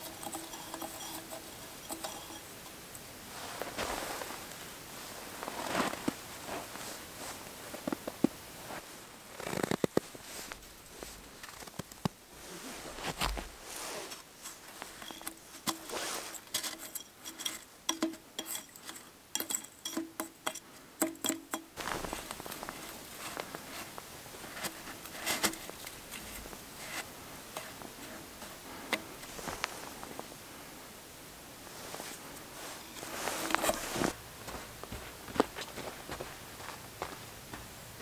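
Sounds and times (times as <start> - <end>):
snow crunching and scraping: 3.3 - 16.8, 21.8 - 30.3, 31.6 - 37.2
taps and clinks on steel: 15.0 - 21.8.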